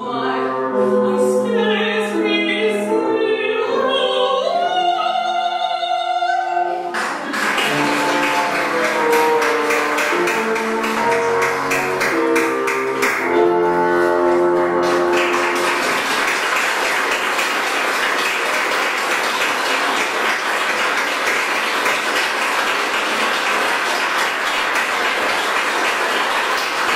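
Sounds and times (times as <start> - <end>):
piano and bassoon music: 0.0 - 5.7, 7.6 - 16.8
audience applause: 6.9 - 26.9.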